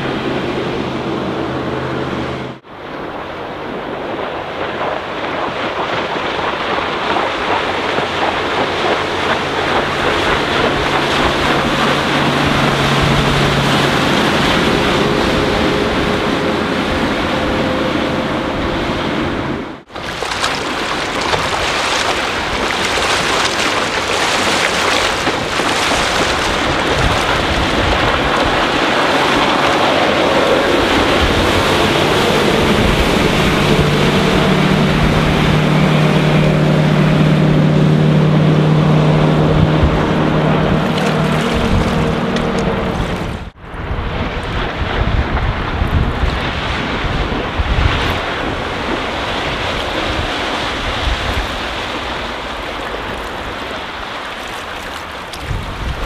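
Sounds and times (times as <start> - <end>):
boat engine hum: 0.0 - 56.0
rushing water: 0.0 - 56.0
wind on microphone: 0.0 - 56.0.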